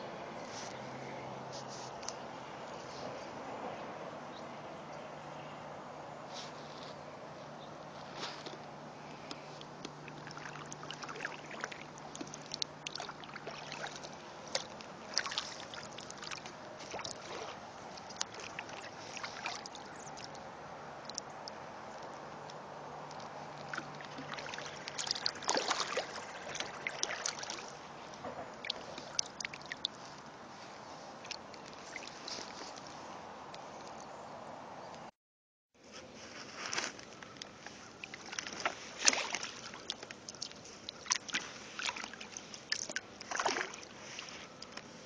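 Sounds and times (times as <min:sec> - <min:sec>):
kayak paddle strokes in water: 0:07.9 - 0:20.5, 0:23.2 - 0:33.1, 0:35.9 - 0:45.0
water drips and splashes: 0:09.6 - 0:22.1, 0:23.0 - 0:32.9, 0:37.4 - 0:44.8.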